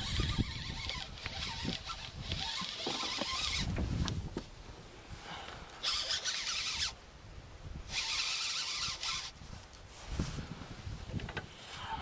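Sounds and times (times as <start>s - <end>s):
fishing reel whirring: 0.0s - 3.7s, 5.8s - 7.0s, 7.9s - 9.4s.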